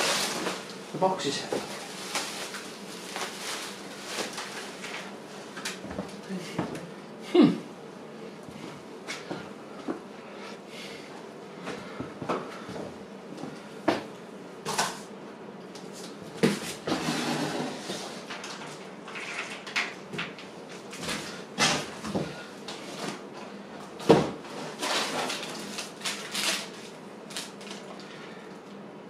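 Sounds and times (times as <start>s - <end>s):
cardboard and wrapping rustling: 0.0s - 5.2s, 24.4s - 28.1s.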